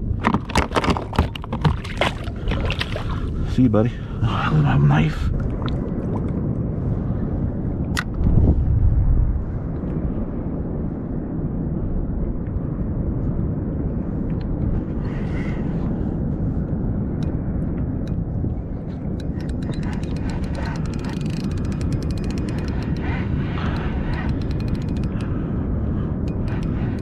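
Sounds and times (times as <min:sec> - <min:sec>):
wind rumble on microphone: 0:00.0 - 0:27.0.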